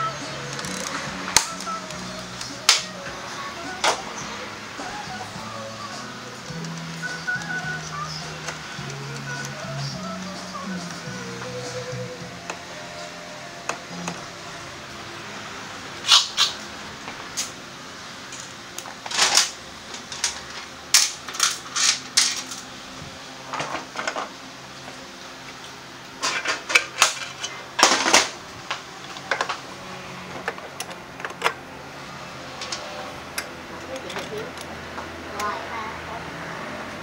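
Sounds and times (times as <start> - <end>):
metal tools clinking: 33.8 - 34.7.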